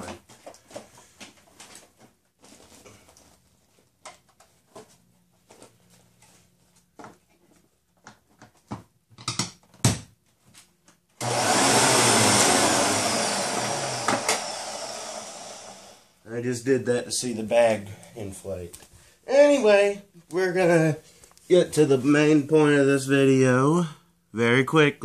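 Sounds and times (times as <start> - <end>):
vacuum motor rushing air: 11.2 - 16.1.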